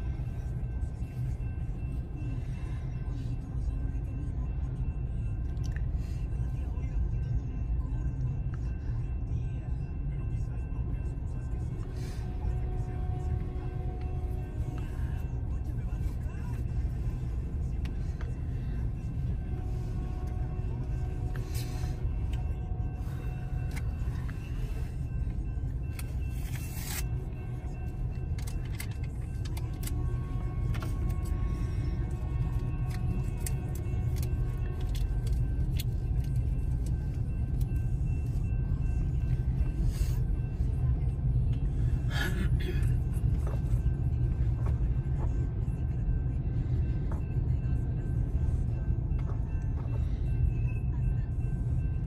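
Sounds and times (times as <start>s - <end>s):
freight train rumbling past: 0.0s - 52.0s.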